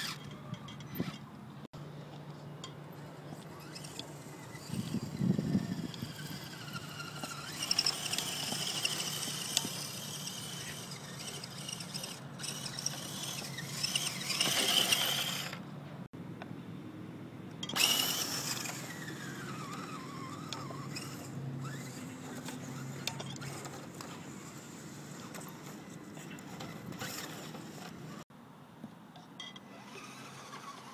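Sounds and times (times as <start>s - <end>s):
rc car motor whine: 0.0s - 0.2s, 3.1s - 15.6s, 17.6s - 28.2s, 29.7s - 30.9s.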